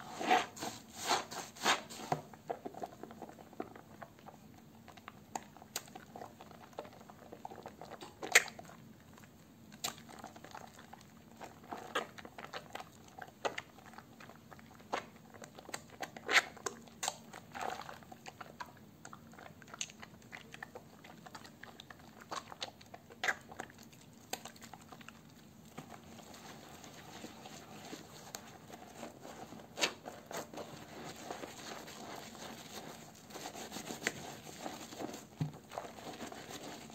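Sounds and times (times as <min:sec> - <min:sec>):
hands squelching soapy lather: 0:09.7 - 0:36.9.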